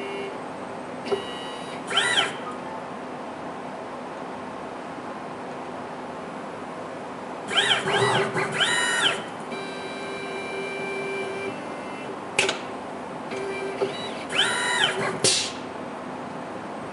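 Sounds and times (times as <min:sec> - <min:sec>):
steady hum of tones: 0:00.0 - 0:16.9
motors whining: 0:01.1 - 0:02.6, 0:07.5 - 0:12.2, 0:13.3 - 0:15.6
sharp click: 0:12.4 - 0:12.7.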